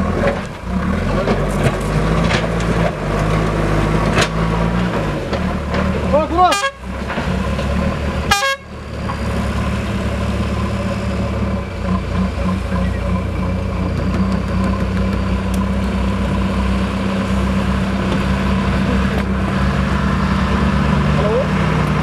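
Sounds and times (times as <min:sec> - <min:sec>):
heavy diesel engines running: 0:00.0 - 0:22.0
vehicle horn toot: 0:06.4 - 0:06.9, 0:08.3 - 0:08.8.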